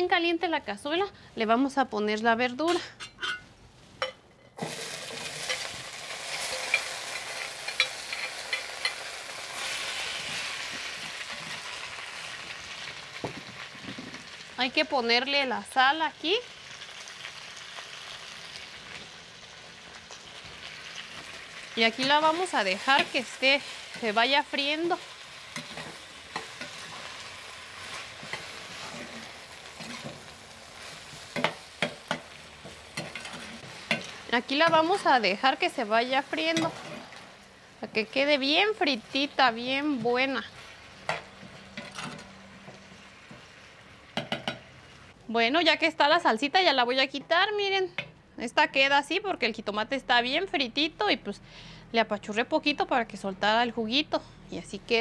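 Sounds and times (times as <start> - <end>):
vegetables sizzling in hot oil: 4.6 - 45.2
spoon scraping and tapping pot: 31.4 - 35.1.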